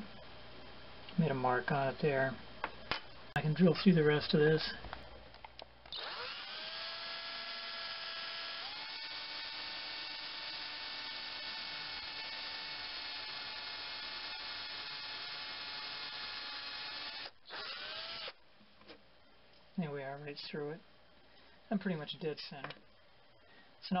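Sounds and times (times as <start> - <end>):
electric drill whining: 5.9 - 18.4.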